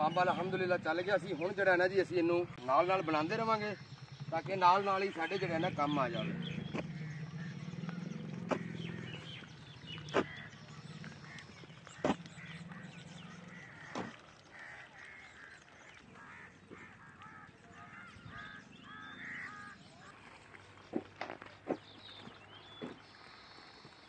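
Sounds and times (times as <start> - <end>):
birds chirping: 0.0 - 24.0
hoe chopping into soil: 8.4 - 8.8, 10.1 - 10.4, 12.0 - 12.2, 13.9 - 14.1.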